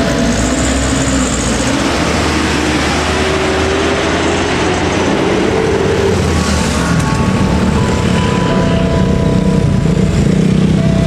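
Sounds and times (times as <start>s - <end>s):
motorcycle traffic noise: 0.0s - 11.0s
truck engine running: 0.0s - 11.0s
faint rising tone: 3.6s - 11.0s.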